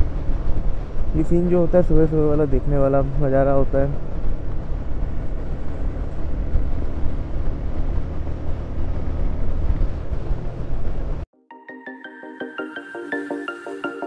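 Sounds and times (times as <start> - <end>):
wind buffeting microphone: 0.0 - 11.2
motorcycle engine cruising: 0.0 - 11.3.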